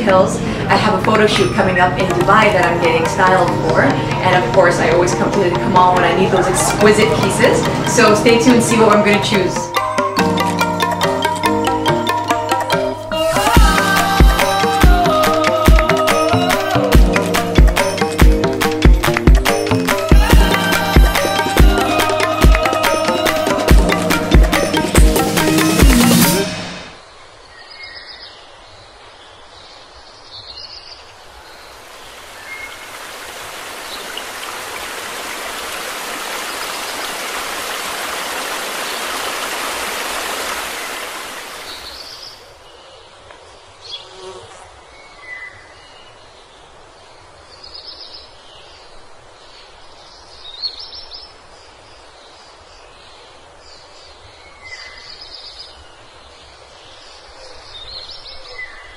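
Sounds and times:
rushing noise: 0:25.4 - 0:27.0.

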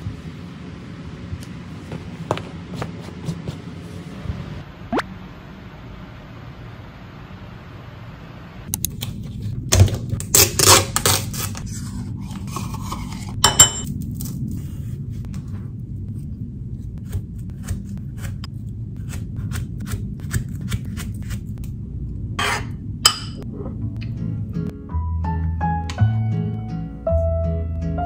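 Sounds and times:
steady low hum: 0:11.4 - 0:25.1
utensils clinking against pots: 0:12.5 - 0:13.9.

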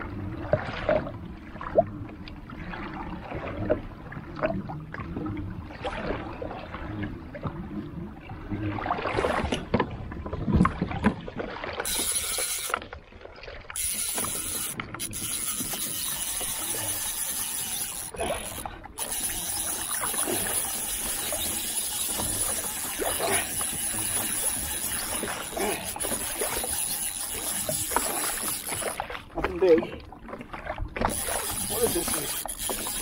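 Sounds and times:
water noise: 0:00.0 - 0:33.0
wind: 0:00.0 - 0:33.0
fishing reel clicking: 0:11.8 - 0:12.9, 0:13.7 - 0:29.1, 0:31.0 - 0:33.0.

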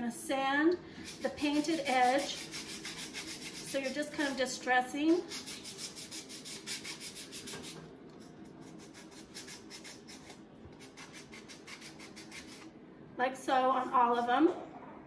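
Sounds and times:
sandpaper rubbing on wood: 0:01.0 - 0:04.4, 0:05.3 - 0:07.8, 0:08.6 - 0:12.7.

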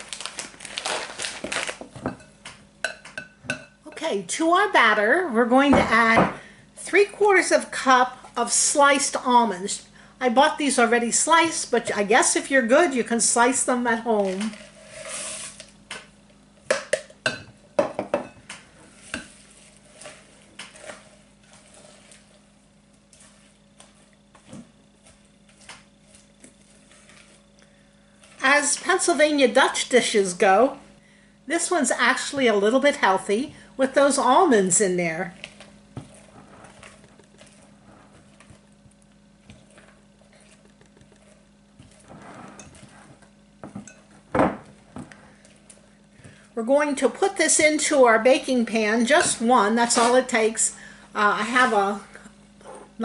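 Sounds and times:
spatula scraping and stirring batter: 0:13.9 - 0:15.7, 0:18.7 - 0:27.5, 0:28.1 - 0:29.7, 0:34.0 - 0:48.0, 0:49.0 - 0:52.8
spatula scraping glass bowl: 0:14.5 - 0:15.6, 0:26.1 - 0:27.4, 0:39.5 - 0:44.2.

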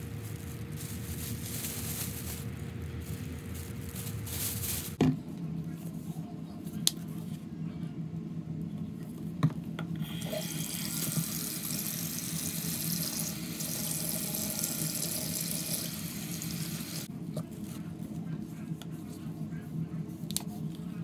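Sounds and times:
tap water running into sink: 0:10.1 - 0:17.1.

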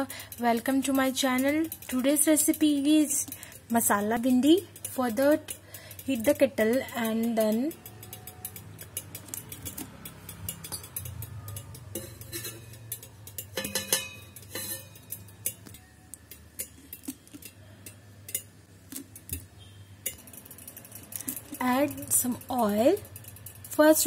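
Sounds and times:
kitchen things clinking on kettle: 0:00.1 - 0:18.5.

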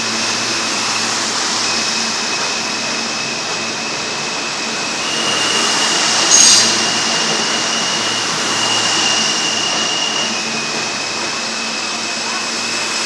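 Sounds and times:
subway train rumbling with whine: 0:00.0 - 0:13.0
brief sharp squeal: 0:04.8 - 0:11.3.

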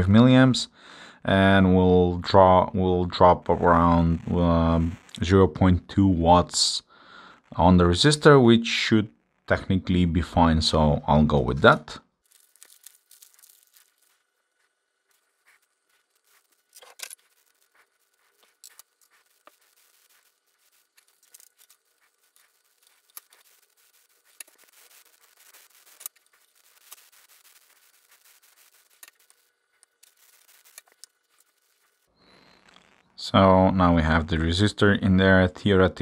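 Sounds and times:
wire leads being bent: 0:11.6 - 0:14.3, 0:15.1 - 0:33.0.

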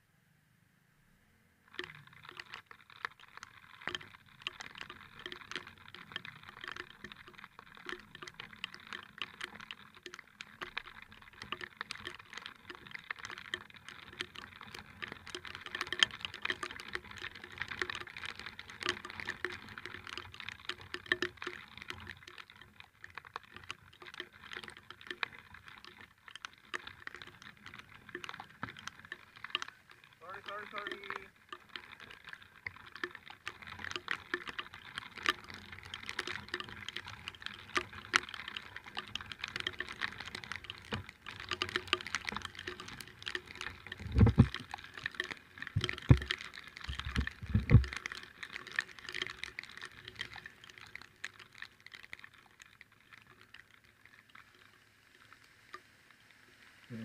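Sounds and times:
faint steady hum: 0:00.0 - 0:02.3
rain pattering: 0:01.6 - 0:57.0.

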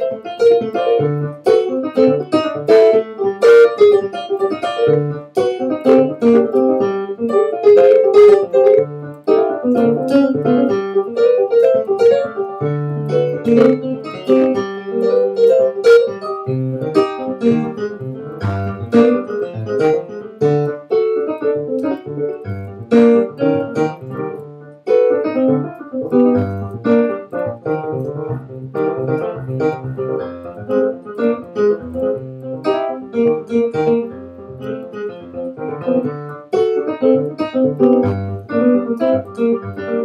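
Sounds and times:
keyboard playing piano chords: 0:00.0 - 0:40.0.

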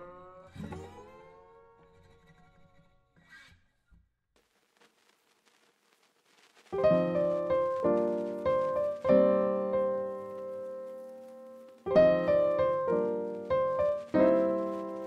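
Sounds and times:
piano chords: 0:06.8 - 0:15.0.

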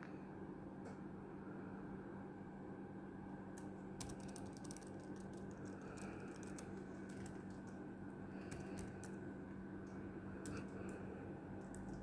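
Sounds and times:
laptop keys clicking: 0:03.6 - 0:07.8, 0:08.4 - 0:09.2, 0:10.4 - 0:12.0.

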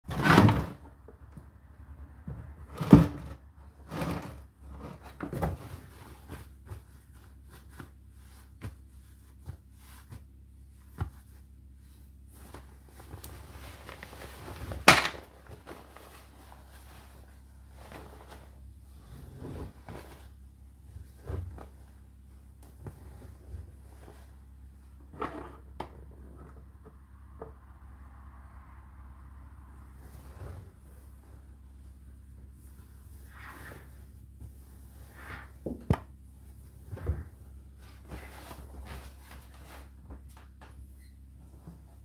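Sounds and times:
fabric rustling: 0:04.1 - 0:24.8.

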